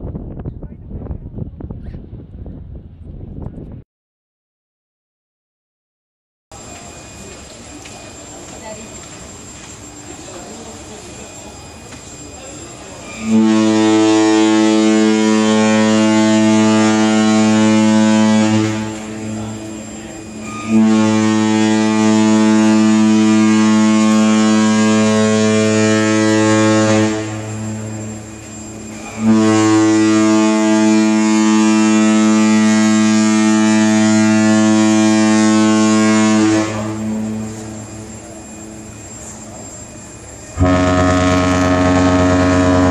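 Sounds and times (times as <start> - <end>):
ship horn blasts: 13.0 - 42.9.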